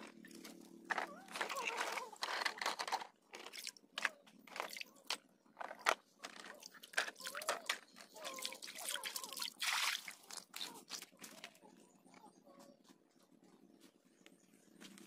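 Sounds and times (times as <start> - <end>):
plastic toy trucks knocking: 0.9 - 4.2
water splashing and dripping: 6.6 - 11.2.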